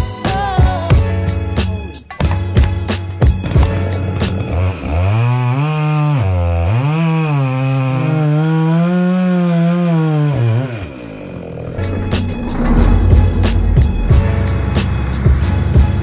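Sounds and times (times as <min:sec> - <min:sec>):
chainsaw cutting a log: 0:03.3 - 0:11.6.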